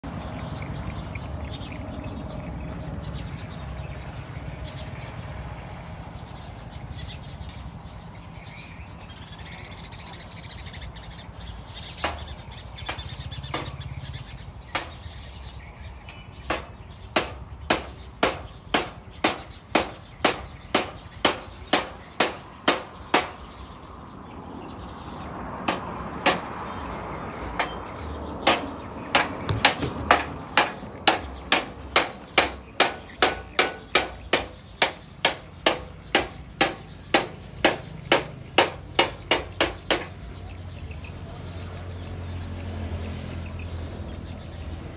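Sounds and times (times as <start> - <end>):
sharp knocks: 12.0 - 13.8, 14.7 - 15.2, 16.5 - 23.4, 25.7 - 26.6, 27.5 - 40.2.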